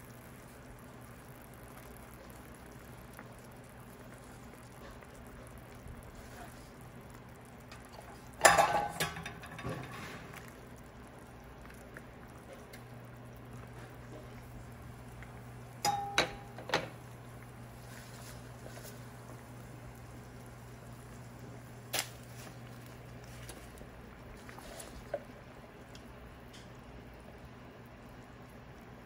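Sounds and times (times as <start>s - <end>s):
low steady hum: 0.0s - 29.0s
metal ladle knocking on pot: 15.9s - 16.8s.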